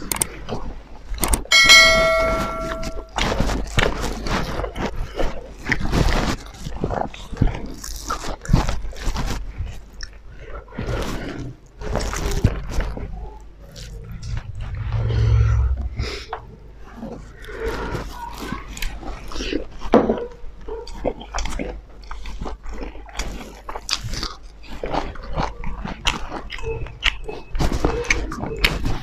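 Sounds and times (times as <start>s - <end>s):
electronic chime: 1.5s - 3.2s
wet chewing and lip-smacking: 3.2s - 14.4s, 17.4s - 29.0s.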